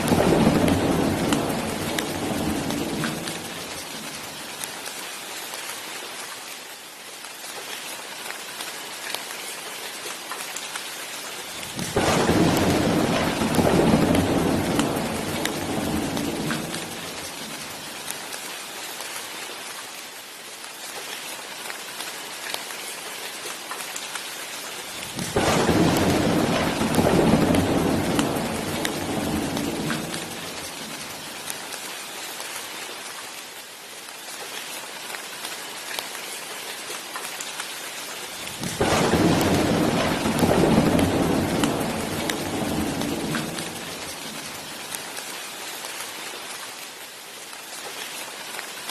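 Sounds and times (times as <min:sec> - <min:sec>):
rolling thunder: 0:00.0 - 0:03.8, 0:11.8 - 0:17.6, 0:25.1 - 0:31.2, 0:38.5 - 0:44.7
steady rain falling: 0:00.0 - 0:48.9.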